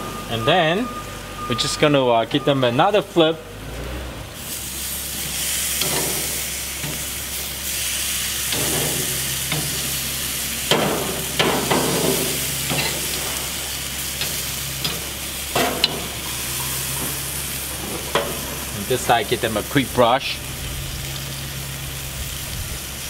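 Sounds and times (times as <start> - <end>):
meat sizzling on grill: 4.4 - 23.0
tongs scraping grill grates: 4.5 - 20.2.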